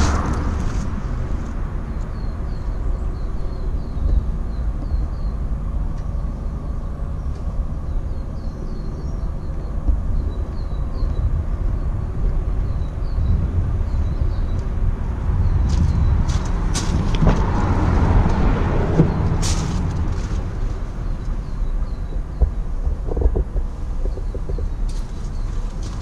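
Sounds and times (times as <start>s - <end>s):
wind buffeting microphone: 0.0s - 26.0s
small birds chirping: 1.9s - 17.6s, 19.0s - 26.0s.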